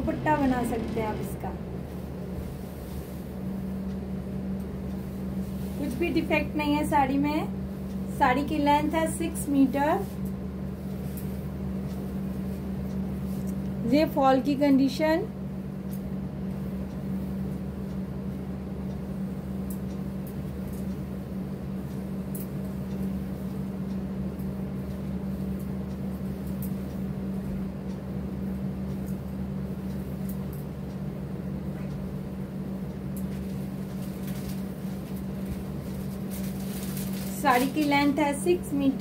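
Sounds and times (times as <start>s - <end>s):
low mechanical hum: 0.0s - 39.0s
fabric rustling: 33.4s - 38.3s.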